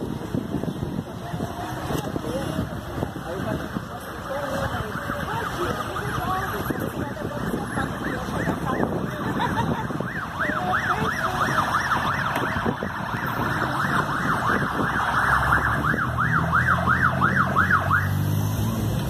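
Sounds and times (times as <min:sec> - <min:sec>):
emergency siren yelping: 0:04.8 - 0:18.4.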